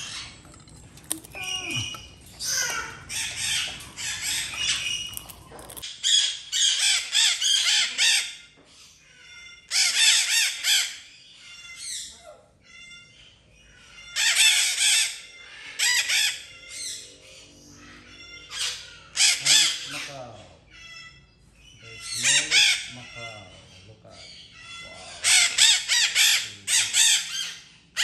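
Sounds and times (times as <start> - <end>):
macaws squawking: 0.0 - 8.2, 21.9 - 23.7, 24.6 - 28.0.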